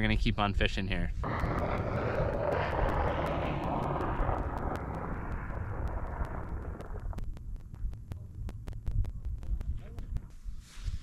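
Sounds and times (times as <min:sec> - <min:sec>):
wind rushing hiss: 0:01.2 - 0:07.1
snowmobile engine rumbling: 0:01.2 - 0:07.2
fast even ticking: 0:01.2 - 0:10.4.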